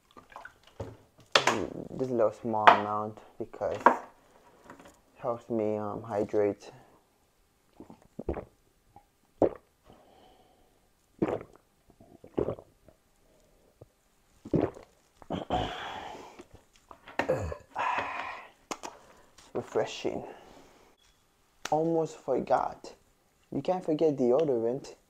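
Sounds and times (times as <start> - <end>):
person gulping water: 7.7 - 9.7, 11.2 - 16.6, 17.2 - 18.5.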